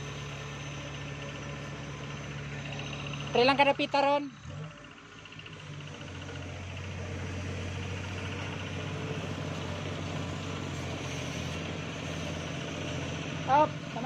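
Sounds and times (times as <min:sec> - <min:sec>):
engine humming steadily: 0:00.0 - 0:14.0.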